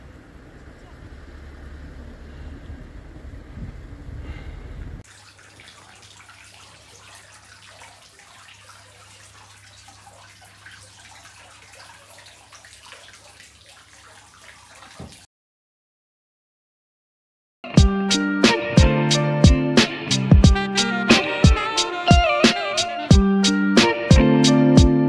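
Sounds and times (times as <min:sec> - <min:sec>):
wind rumbling on microphone: 0:00.0 - 0:05.0
water splashing and trickling: 0:00.0 - 0:15.3.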